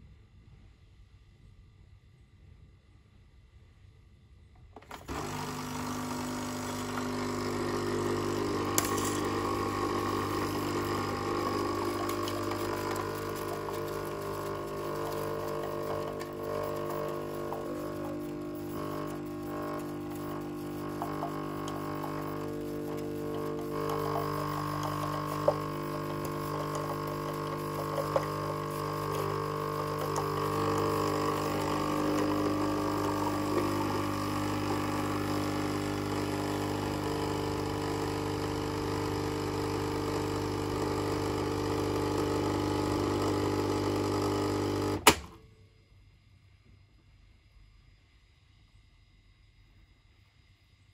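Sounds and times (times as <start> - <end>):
coffee machine pump humming: 4.8 - 45.4.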